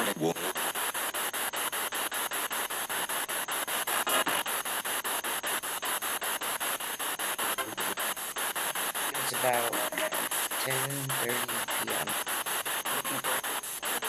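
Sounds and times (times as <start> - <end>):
snatches of radio voice: 0.0 - 0.8, 7.4 - 14.0
radio static hissing: 0.0 - 14.0.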